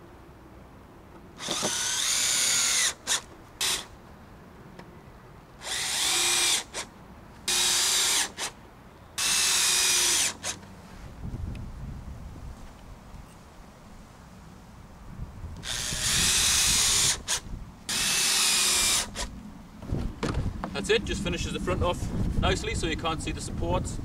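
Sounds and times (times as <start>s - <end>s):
drill trigger taps: 1.4s - 3.8s
cordless drill driving screws: 1.4s - 3.9s, 5.6s - 6.9s, 7.5s - 8.6s, 9.2s - 10.6s, 15.6s - 19.3s.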